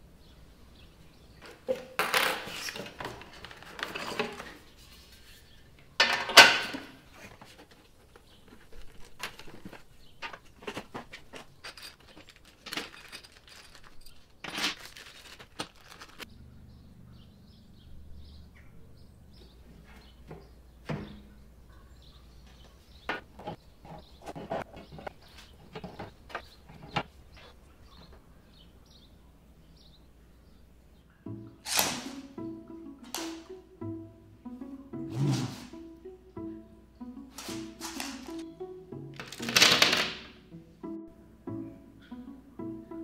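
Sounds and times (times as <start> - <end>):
cardboard and plastic bags rustling: 1.5 - 5.8, 6.9 - 16.3, 37.4 - 38.4, 39.2 - 40.0.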